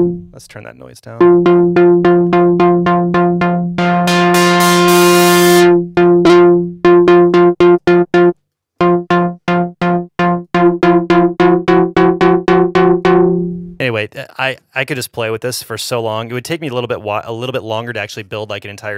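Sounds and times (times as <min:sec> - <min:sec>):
synth bass notes: 0:00.0 - 0:00.5, 0:01.2 - 0:13.8.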